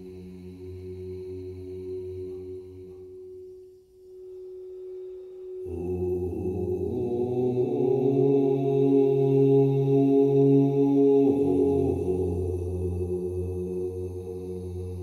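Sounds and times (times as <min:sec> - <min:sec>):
singing bowl sustained tone: 0:00.0 - 0:10.3, 0:11.2 - 0:15.0
man chanting in a low voice: 0:05.6 - 0:15.0.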